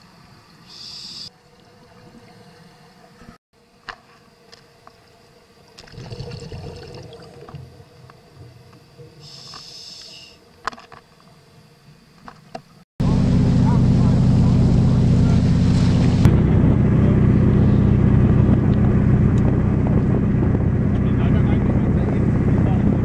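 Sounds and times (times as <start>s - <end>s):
exhaled air bubbling underwater: 5.8s - 9.2s
regulator hiss on inhale: 9.2s - 10.4s.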